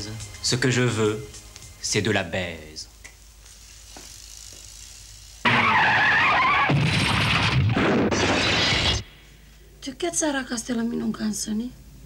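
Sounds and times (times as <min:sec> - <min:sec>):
car tyres screeching: 0:05.4 - 0:07.4.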